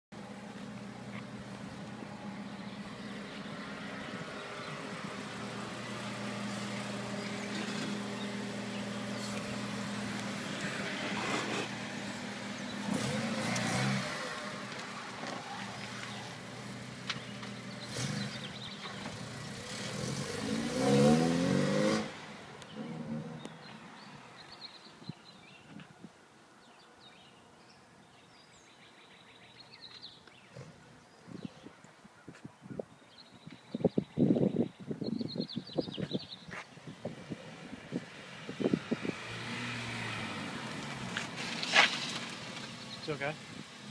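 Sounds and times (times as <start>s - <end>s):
car engine running and revving: 0.2s - 24.1s, 35.9s - 43.9s.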